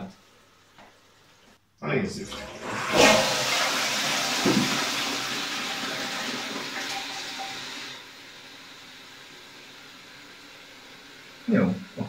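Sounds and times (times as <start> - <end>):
toilet flush water rushing: 2.1 - 12.0.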